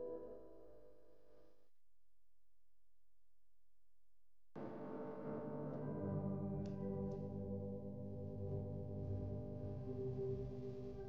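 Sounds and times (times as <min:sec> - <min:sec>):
soft ambient music: 0:00.0 - 0:01.2, 0:04.6 - 0:11.0.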